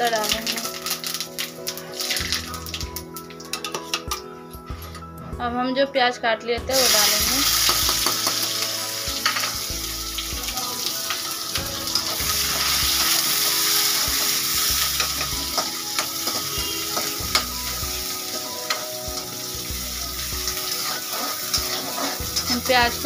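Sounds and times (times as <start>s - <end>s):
onions sizzling in hot oil: 0.0s - 3.0s, 6.7s - 23.0s
stirring clicks and scrapes in pan: 3.4s - 4.2s, 20.5s - 22.6s.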